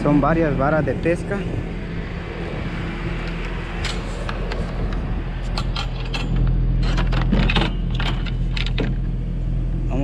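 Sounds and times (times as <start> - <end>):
fishing rods rattling against metal rack: 3.8 - 9.0.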